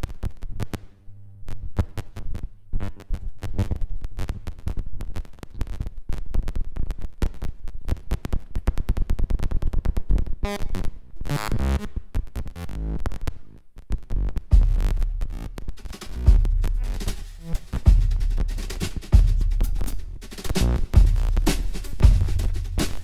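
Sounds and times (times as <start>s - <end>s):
stuttering electronic clicks and pulses: 7.2s - 23.0s.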